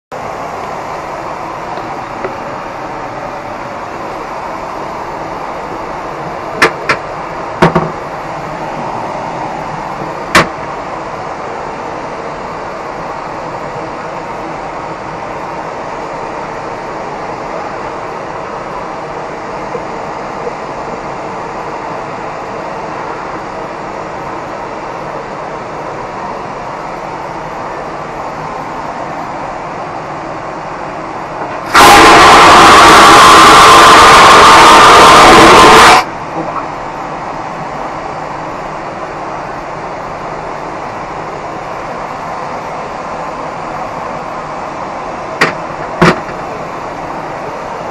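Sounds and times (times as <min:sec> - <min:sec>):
airliner cabin noise: 0:00.1 - 0:47.9
toilet vacuum flush: 0:31.7 - 0:36.1.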